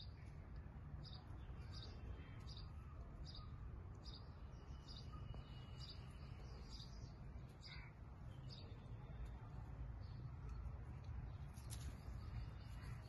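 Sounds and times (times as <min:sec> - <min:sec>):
bird chirping: 0:01.0 - 0:09.4.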